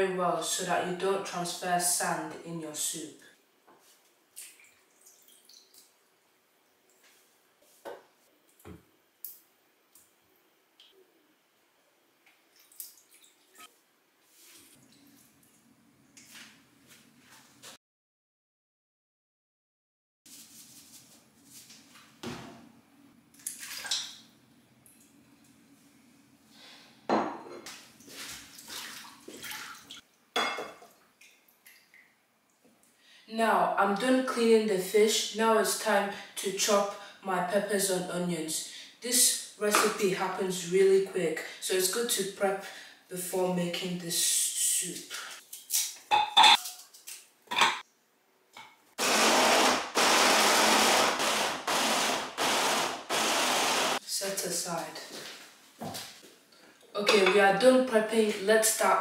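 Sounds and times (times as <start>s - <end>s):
water sloshing and splashing: 4.3s - 6.0s, 12.4s - 13.7s, 23.3s - 24.3s, 27.8s - 30.1s
electric blender chopping: 49.0s - 54.0s.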